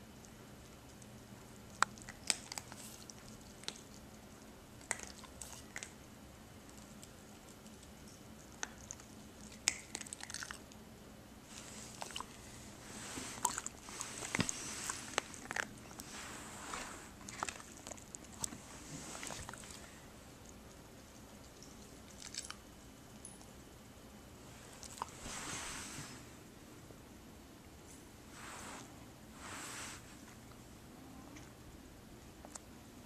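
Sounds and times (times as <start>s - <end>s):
puppy crunching food: 0.2s - 6.0s, 6.6s - 10.8s, 11.5s - 22.7s, 24.7s - 25.2s.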